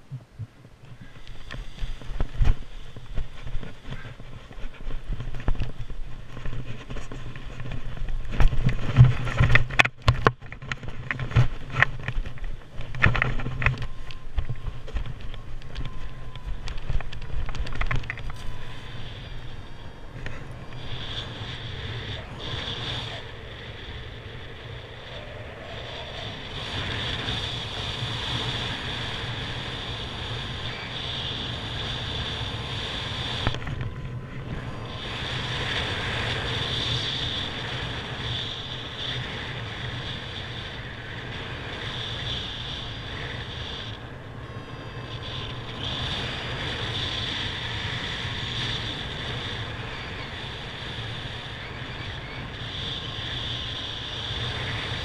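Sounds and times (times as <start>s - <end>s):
wind rushing over microphone: 0.0s - 55.0s.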